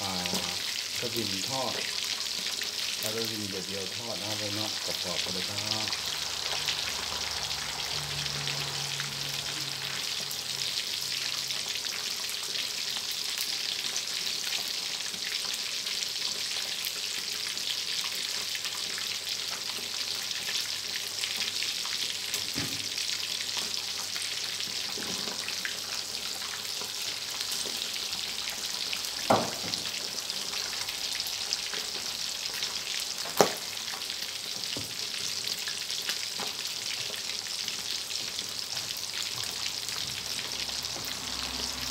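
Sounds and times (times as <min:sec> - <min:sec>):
fish deep-frying in oil: 0:00.0 - 0:41.9
sharp oil pop: 0:33.3 - 0:33.6.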